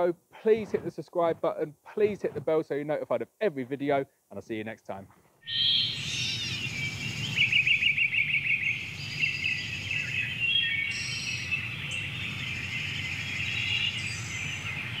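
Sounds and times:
low background noise: 0.0s - 15.0s
birds singing and chirping: 5.4s - 15.0s.

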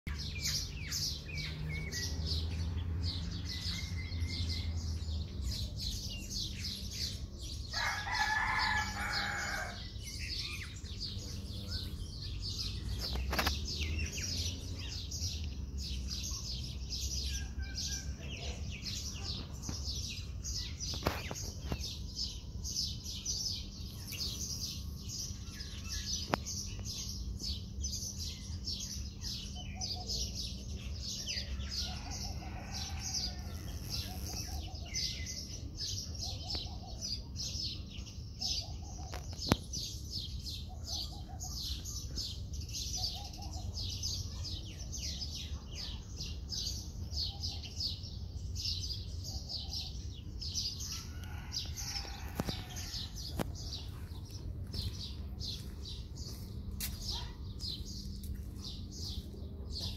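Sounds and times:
small birds chirping: 0.1s - 59.9s
rooster crowing: 7.7s - 9.8s, 31.6s - 34.4s.

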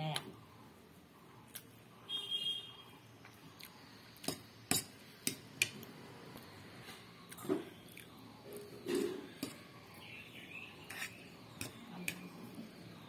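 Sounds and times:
fork scraping on a plate: 8.8s - 9.7s, 10.8s - 12.2s.

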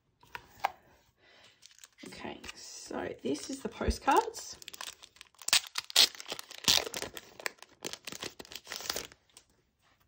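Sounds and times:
packaging crinkling and rustling: 1.6s - 2.5s, 4.5s - 9.5s.

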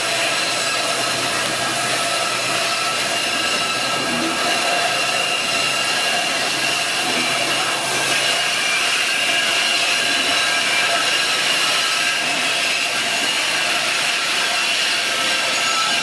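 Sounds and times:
train wheels squealing on rails: 0.0s - 16.0s.

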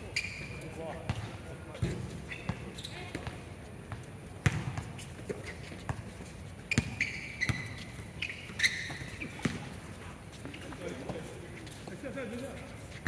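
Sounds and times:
high short squeaks: 0.0s - 0.8s, 2.2s - 3.2s, 6.7s - 9.4s
basketball bouncing on court: 1.1s - 4.9s, 6.7s - 7.8s, 8.6s - 9.8s.

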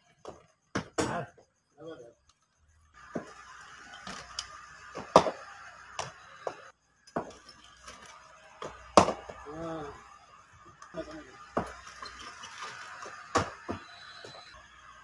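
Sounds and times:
cricket ball knocks and clacks: 6.0s - 7.4s, 8.6s - 9.4s, 11.6s - 11.8s.

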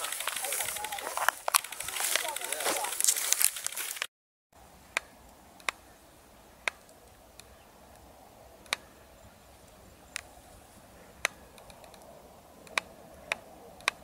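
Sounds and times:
noisy crackling: 0.0s - 4.1s
sharp isolated ticks: 4.9s - 5.8s, 6.6s - 8.9s, 9.7s - 10.3s, 11.2s - 14.0s.

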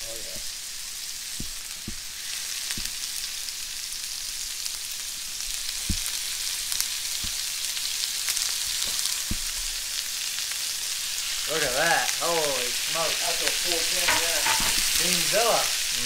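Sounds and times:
fish sizzling in a pan: 0.0s - 16.0s.

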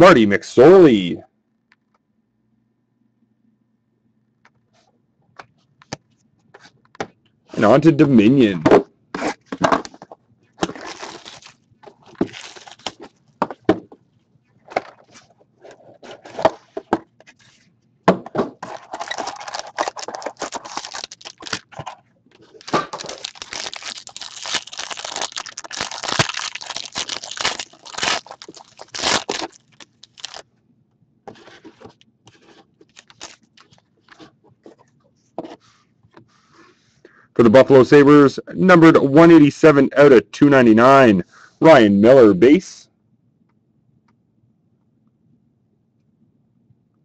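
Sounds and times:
foil wrapper crinkling and tearing: 10.6s - 13.1s, 18.6s - 21.8s, 22.4s - 30.4s, 32.8s - 33.8s
shrink-wrap and cardboard being cut: 10.6s - 13.1s, 18.6s - 21.8s, 22.5s - 30.4s, 32.9s - 33.5s.

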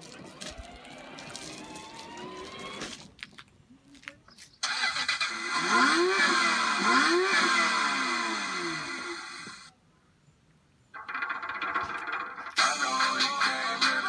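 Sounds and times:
engine revving sound effect: 0.4s - 3.0s, 4.6s - 9.7s.

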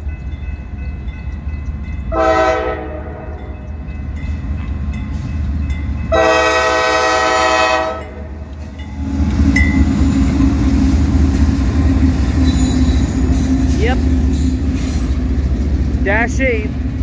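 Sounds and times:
diesel locomotive engine rumble: 0.0s - 17.0s
locomotive air horn blast: 2.1s - 3.3s, 6.1s - 8.2s.

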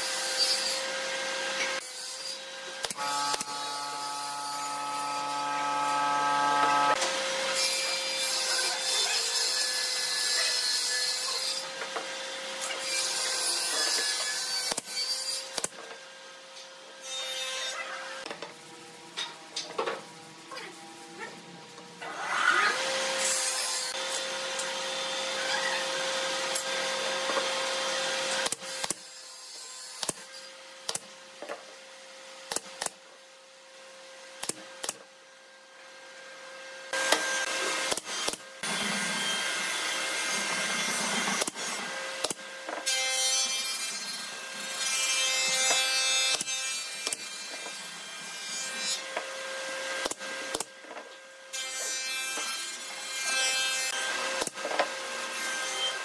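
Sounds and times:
power tool running on wood: 2.9s - 7.5s.

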